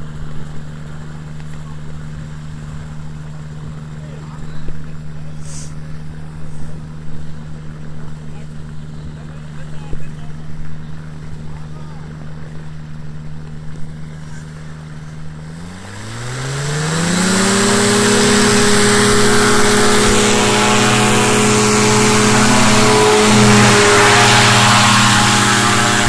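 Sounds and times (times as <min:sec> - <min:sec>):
propeller engine revving up: 0:00.0 - 0:26.0.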